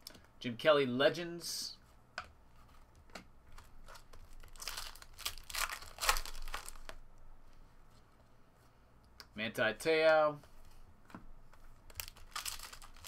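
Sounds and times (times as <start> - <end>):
cards rustling and shuffling: 2.2 - 7.0, 10.4 - 13.0.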